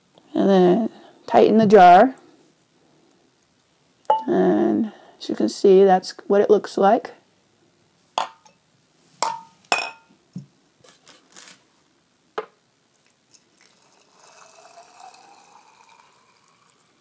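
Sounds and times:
glass jars clinking: 4.1 - 4.3, 8.2 - 8.6, 9.2 - 10.1
water pouring into jar: 13.6 - 17.0.

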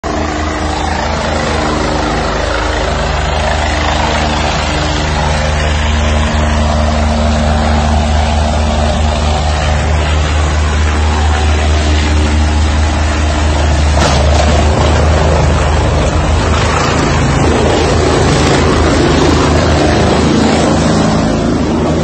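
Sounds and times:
helicopter rotor and engine: 0.0 - 22.0.

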